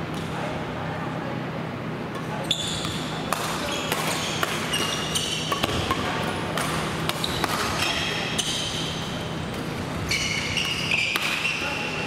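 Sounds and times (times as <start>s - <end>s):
shoes squeaking on gym floor: 2.4s - 6.1s, 7.1s - 12.0s
racket hitting shuttlecock: 2.8s - 8.8s, 10.5s - 11.8s.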